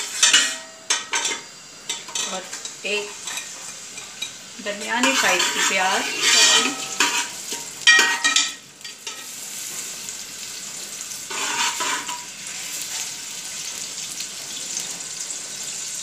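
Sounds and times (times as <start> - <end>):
onions sizzling in hot oil: 0.0 - 16.0
ladle scraping a pot: 5.0 - 8.4, 11.3 - 12.2.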